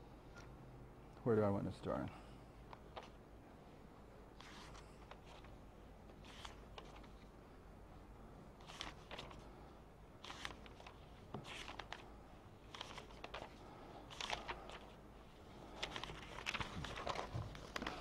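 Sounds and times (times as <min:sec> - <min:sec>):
paper pages rustling: 0:02.7 - 0:03.2, 0:04.4 - 0:07.3, 0:08.6 - 0:09.5, 0:10.2 - 0:15.0, 0:15.6 - 0:18.0.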